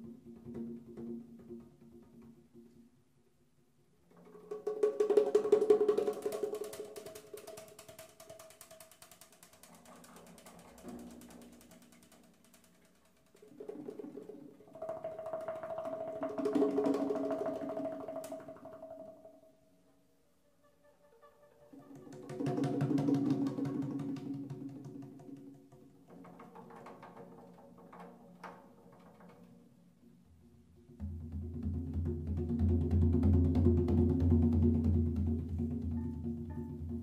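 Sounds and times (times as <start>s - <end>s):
hand drum rolls: 4.2s - 19.4s, 21.9s - 29.7s, 30.7s - 37.0s.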